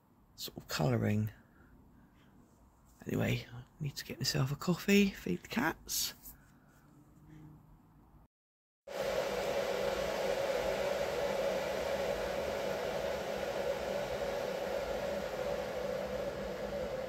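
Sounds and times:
appliance whirring hum: 8.9s - 17.0s.

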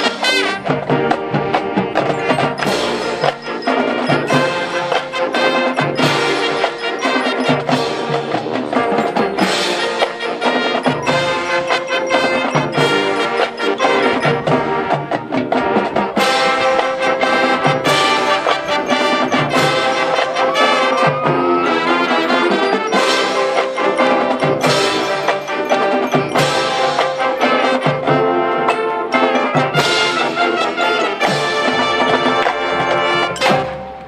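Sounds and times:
marching band playing: 0.0s - 34.0s.

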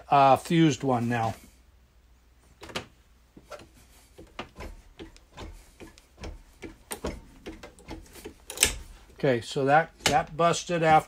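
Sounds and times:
metallic clicks and knocks: 3.5s - 9.2s, 9.9s - 10.4s.

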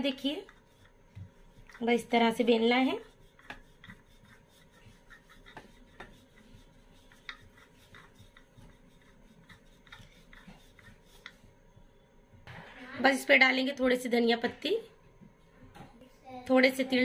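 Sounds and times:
rolling pin rubbing on dough: 0.0s - 11.7s.

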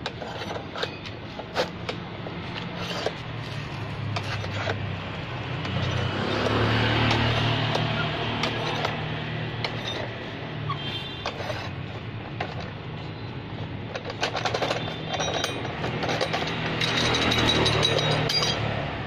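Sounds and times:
metallic clicks and clinks: 11.2s - 18.9s.

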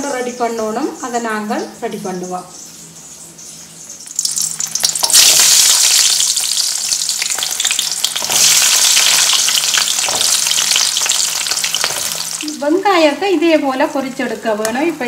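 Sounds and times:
shallots sizzling in hot oil: 4.0s - 15.0s.

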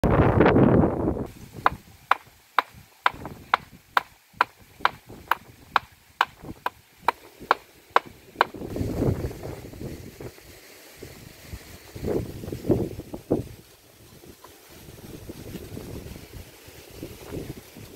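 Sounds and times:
wind on microphone: 0.0s - 17.9s
hammer striking concrete post: 1.6s - 8.6s.

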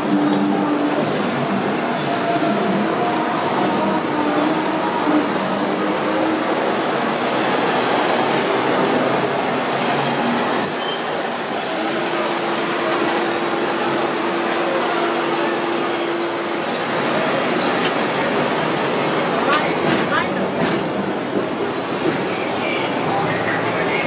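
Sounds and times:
tram wheels rumbling on rails: 0.0s - 24.0s
high wheel squeals: 2.0s - 12.2s.

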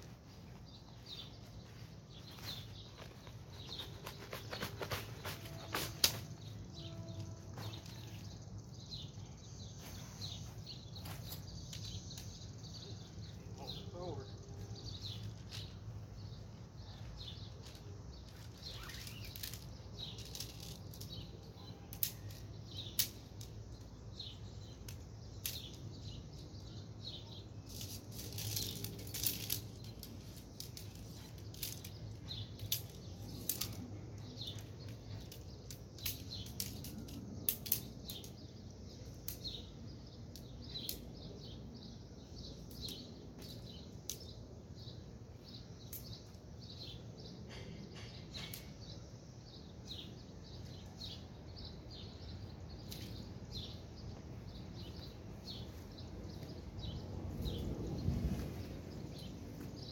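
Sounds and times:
birds chirping: 0.0s - 59.9s
tent poles clicking: 2.2s - 8.4s, 17.0s - 26.8s, 27.6s - 41.2s, 52.8s - 53.8s.

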